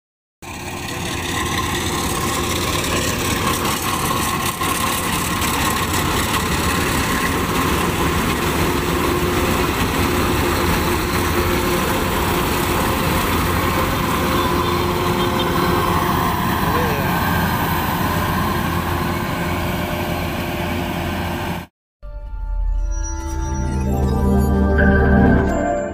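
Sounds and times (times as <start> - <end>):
combine harvester engine running: 0.4 - 21.7
steady machine whine: 0.4 - 21.7.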